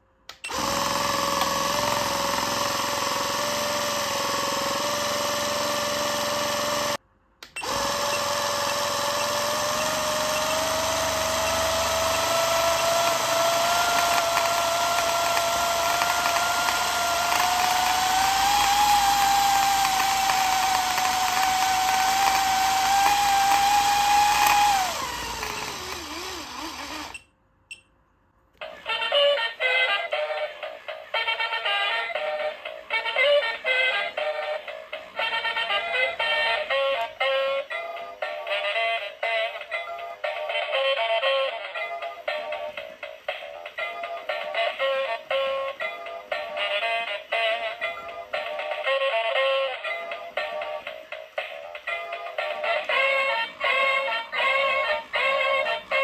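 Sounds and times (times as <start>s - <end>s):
small electric motor whining: 0.5s - 7.0s, 7.6s - 27.2s.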